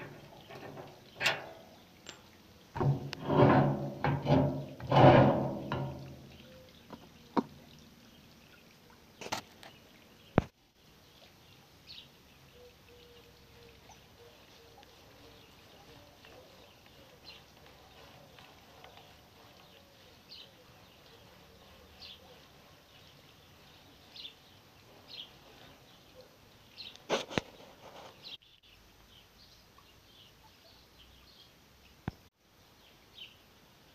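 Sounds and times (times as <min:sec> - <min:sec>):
small birds chirping: 0:06.1 - 0:33.9.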